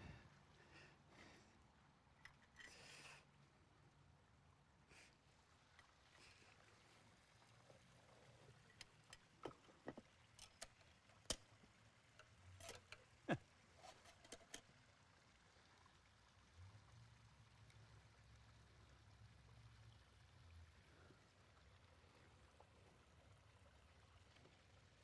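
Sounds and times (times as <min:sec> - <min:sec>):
faint clicks and knocks: 0:07.4 - 0:14.9.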